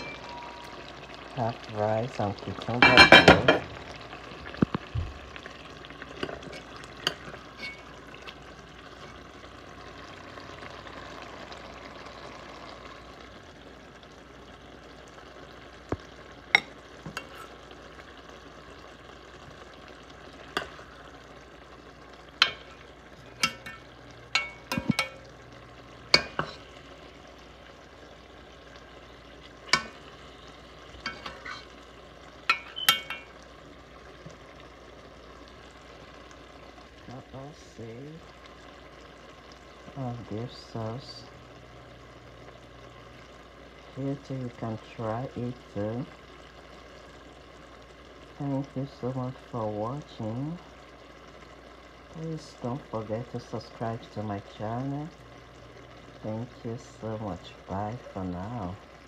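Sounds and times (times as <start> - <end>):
faint steady hiss: 0.0 - 59.0
spoon knocking against pot: 24.4 - 25.2, 32.5 - 33.3.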